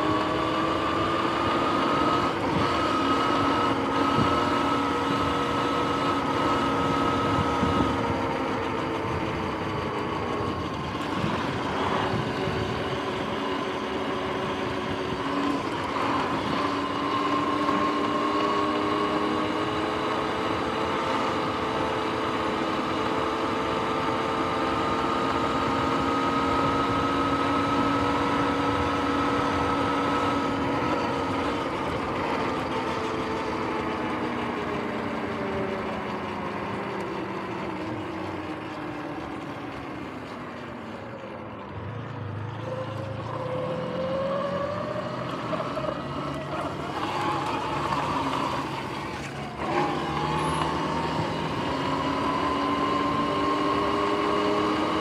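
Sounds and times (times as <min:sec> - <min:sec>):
wind noise: 0:06.4 - 0:13.6
electric motor whining: 0:42.6 - 0:55.0.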